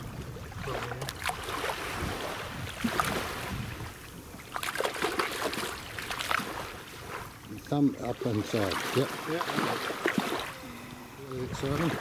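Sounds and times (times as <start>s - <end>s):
water splashing and sloshing: 0.0s - 12.0s
sharp splashes: 4.4s - 10.8s.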